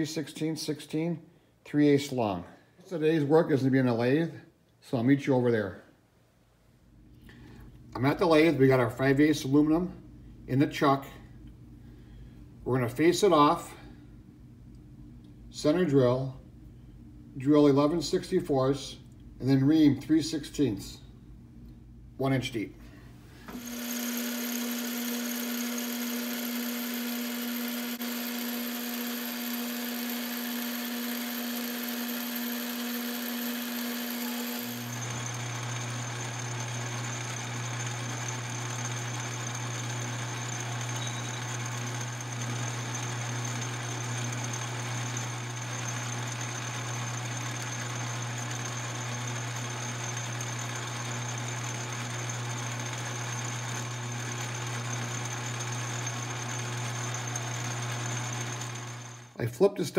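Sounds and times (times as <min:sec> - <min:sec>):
metal lathe running: 0:23.5 - 0:59.4.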